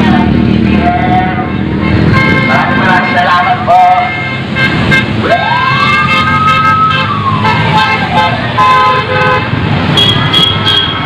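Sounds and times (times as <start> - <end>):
passing vehicles: 0.0 - 11.0
siren wailing: 5.2 - 8.7.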